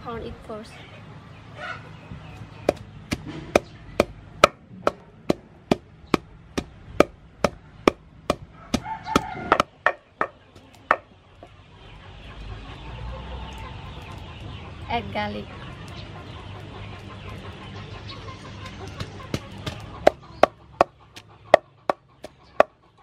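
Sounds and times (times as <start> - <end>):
wooden pestle pounding in mortar: 2.7 - 11.1, 18.9 - 21.0.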